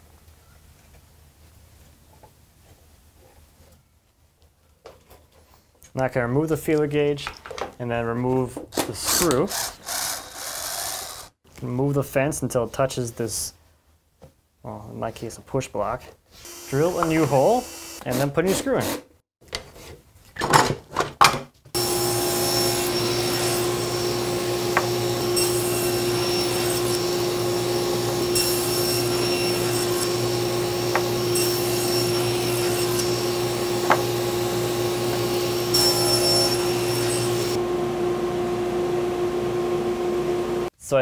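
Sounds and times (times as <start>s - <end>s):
shop machinery whirring: 9.5s - 11.3s, 21.8s - 40.7s
cordless drill bursts: 9.5s - 11.4s, 16.4s - 18.0s.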